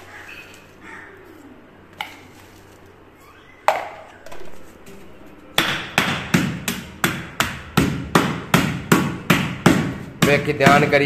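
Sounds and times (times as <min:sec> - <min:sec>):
pounding cloth bundle on wooden board: 0:05.6 - 0:11.0.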